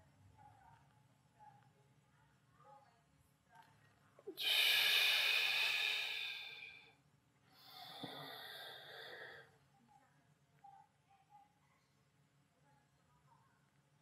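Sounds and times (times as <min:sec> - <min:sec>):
man breathing: 0:04.4 - 0:06.8, 0:07.6 - 0:09.5.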